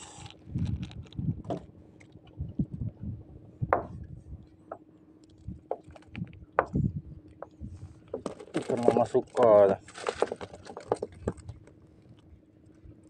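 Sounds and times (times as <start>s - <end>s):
faint steady hum: 0.0s - 13.0s
knocks and thuds on wood: 3.7s - 4.0s.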